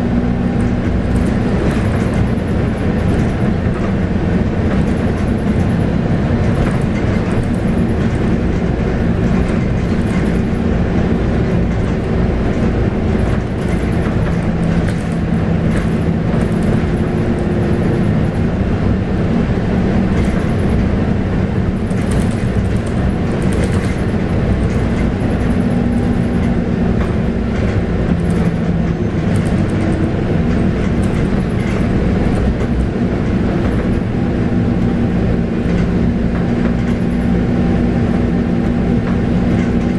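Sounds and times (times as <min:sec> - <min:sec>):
bus body rattling: 0:00.0 - 0:39.9
diesel bus engine droning: 0:00.0 - 0:39.9
road rumble: 0:00.0 - 0:39.9.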